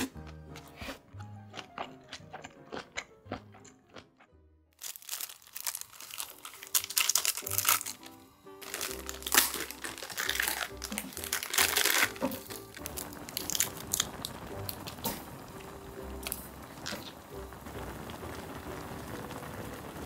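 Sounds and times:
background music: 0.0 - 20.0
plastic packets crinkling and tearing: 4.8 - 17.2.

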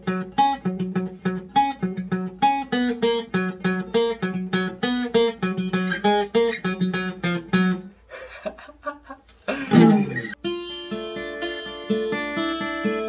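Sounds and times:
acoustic guitar picked notes: 0.0 - 7.9, 9.7 - 13.0
loud guitar strum: 9.7 - 10.8.

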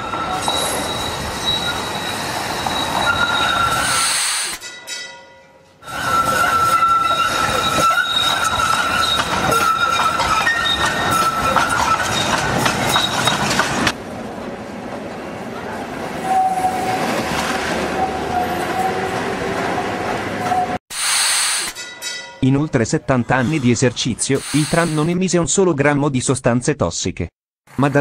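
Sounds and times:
tram rattling over rails: 0.0 - 20.8.

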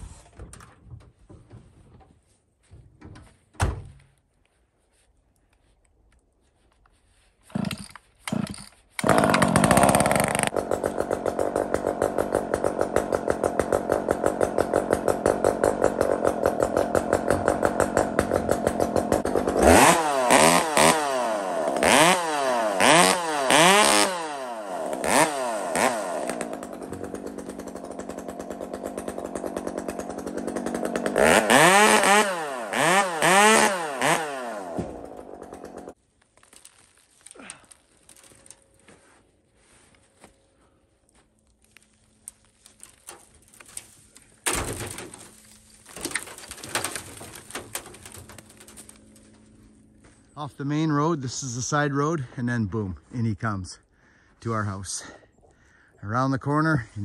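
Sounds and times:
chainsaw starter pulls: 7.4 - 21.0, 21.6 - 36.0
chainsaw revving: 7.5 - 36.0.

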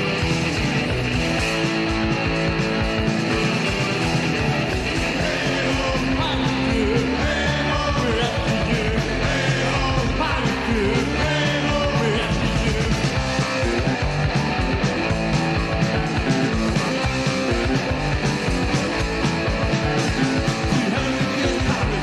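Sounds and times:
punk rock band playing: 0.0 - 22.0.

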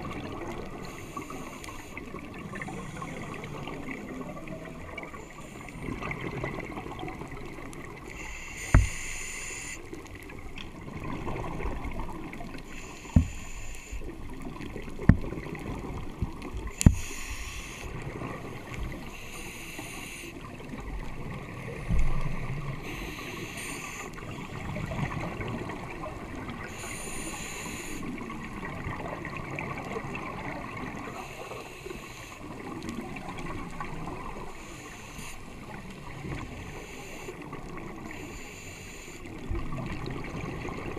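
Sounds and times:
underwater bubbles gurgling: 0.0 - 40.9.

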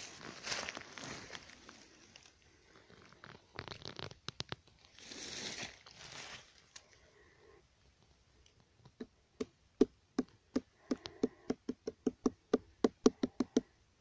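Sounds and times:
leaves rustling and crackling: 0.0 - 7.0
soft swishes in leaves: 4.9 - 6.7.

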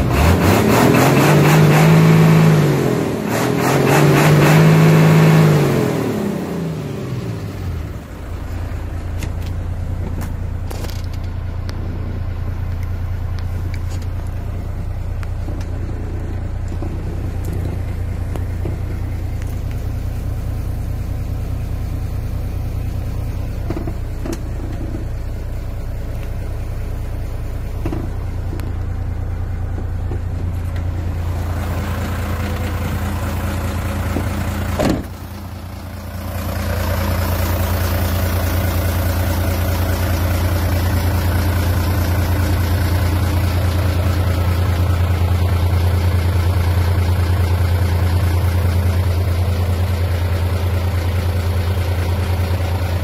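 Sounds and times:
diesel engine running: 0.0 - 53.0.

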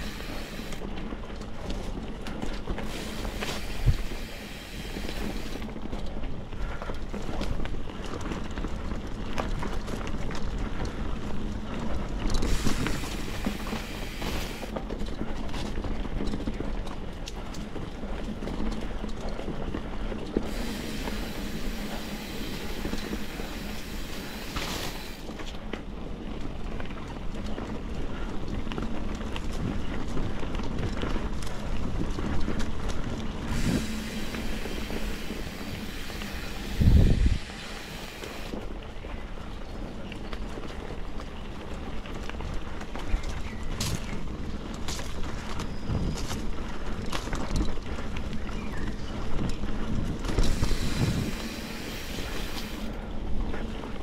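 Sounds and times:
high hiss: 0.0 - 0.8, 2.8 - 5.6, 12.5 - 14.7, 20.5 - 25.3, 33.5 - 38.6, 50.4 - 52.9
bike clicks and rattles: 0.0 - 54.0
bike tyres on dirt: 0.0 - 54.0
wind rumbling on microphone: 0.0 - 54.0.

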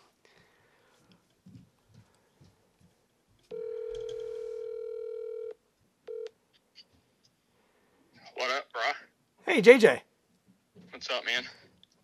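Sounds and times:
telephone ringback tone: 3.5 - 6.3.

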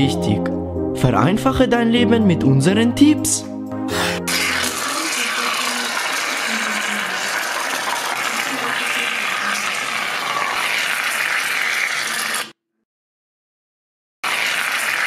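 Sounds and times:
aerosol can spraying: 4.2 - 5.3.

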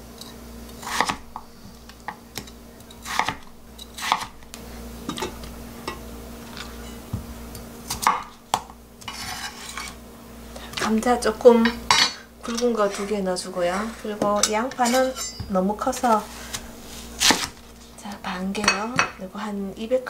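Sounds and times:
faint steady hum: 0.0 - 20.0
knife chopping on wooden board: 0.8 - 1.5, 2.1 - 4.3, 7.9 - 9.4, 13.9 - 17.6.

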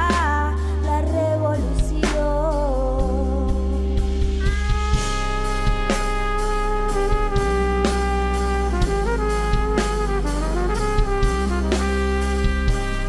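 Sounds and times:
bass line: 0.0 - 13.0
drum hits: 3.7 - 13.0
trumpet melody: 4.3 - 13.0.

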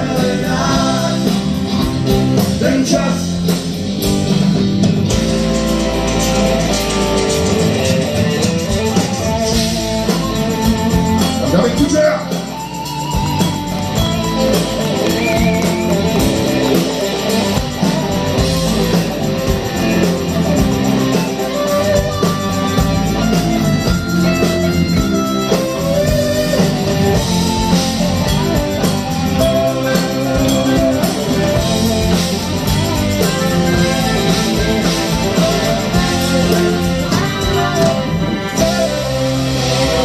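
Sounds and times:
drums: 0.0 - 40.0
keyboards: 0.0 - 40.0.

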